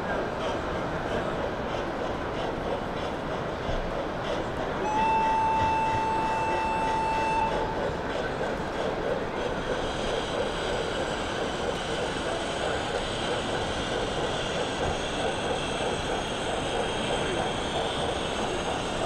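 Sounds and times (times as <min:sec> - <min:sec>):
exhibition hall crowd hubbub: 0:00.0 - 0:19.0
high whistle tone: 0:04.8 - 0:07.6.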